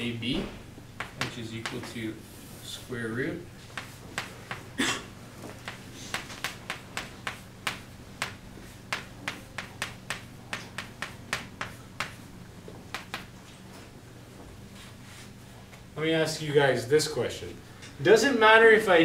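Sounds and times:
chalk tapping and scraping: 1.0s - 2.9s, 3.6s - 4.7s, 5.5s - 13.3s.

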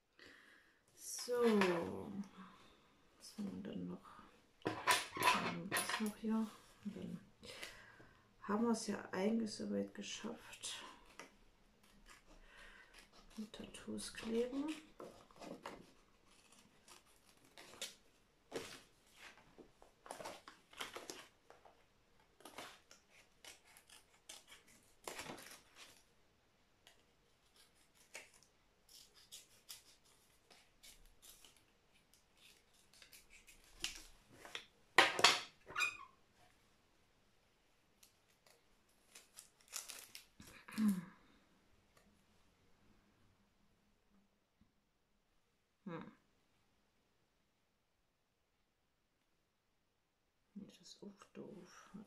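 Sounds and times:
scissors snipping: 22.4s - 25.6s.

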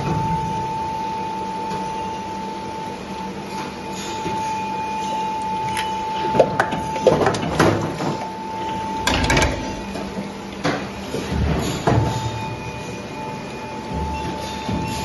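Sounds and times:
machine clunks and knocks: 9.0s - 12.4s.

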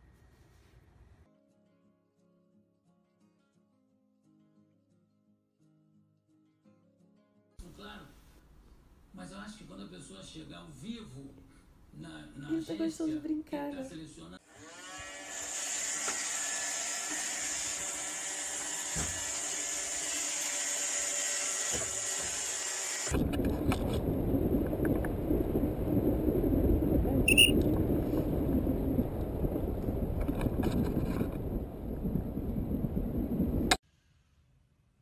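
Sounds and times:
wind buffeting microphone: 23.1s - 33.8s
short high-pitched tone: 27.2s - 27.6s.

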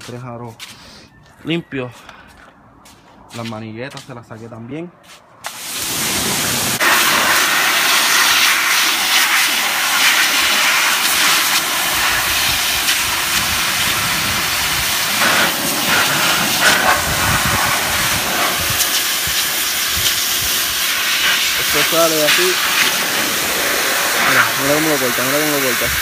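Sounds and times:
pressure washer spraying water: 5.4s - 26.0s.

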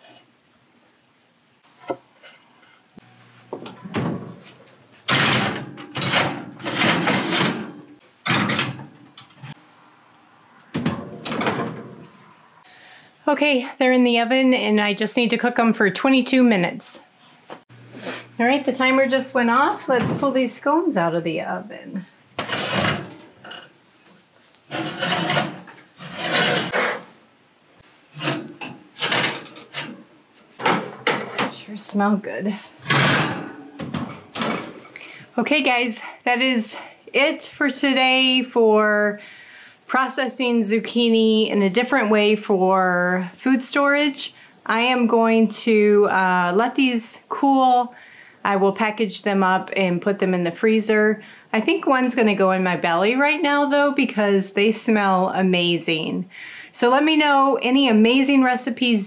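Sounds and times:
metal oven rack clattering: 5.1s - 9.4s, 28.2s - 30.0s, 32.8s - 34.8s.

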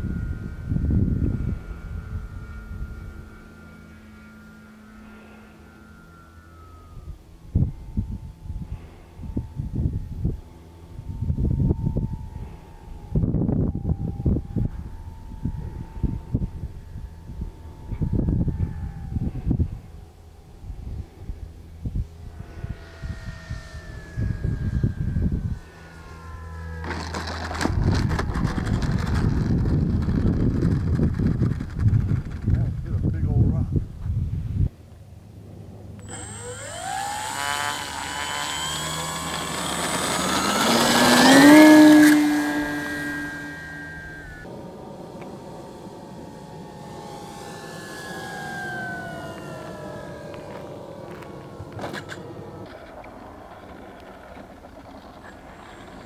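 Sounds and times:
model plane motor humming: 0.0s - 33.2s, 35.4s - 56.0s
wheels clattering on asphalt: 51.8s - 56.0s.

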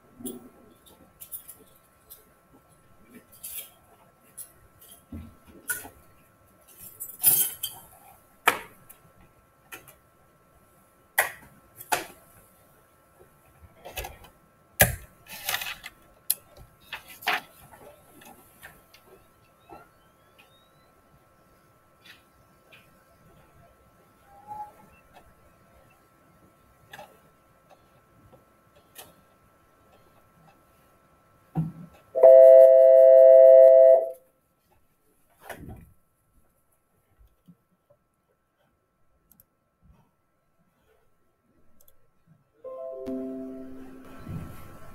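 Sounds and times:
faint high-pitched tone: 32.2s - 34.2s, 42.6s - 44.9s.

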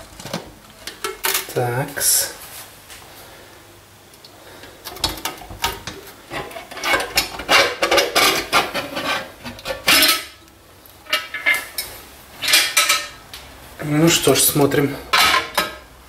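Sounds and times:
lid clanking: 4.9s - 10.4s
lid scraping and clattering on pot: 4.9s - 10.4s, 11.0s - 13.2s, 15.1s - 15.9s.

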